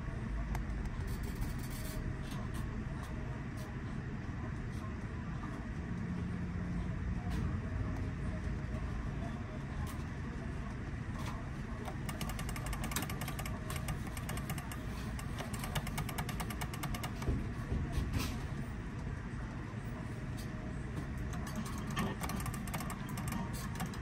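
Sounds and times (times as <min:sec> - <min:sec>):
rapid ticking of tally counter: 0:11.8 - 0:17.4, 0:21.2 - 0:24.0.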